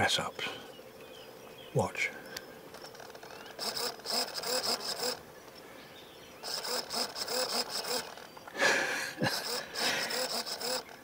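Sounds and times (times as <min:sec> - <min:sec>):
small motor whirring: 0:02.7 - 0:05.6, 0:06.4 - 0:11.0.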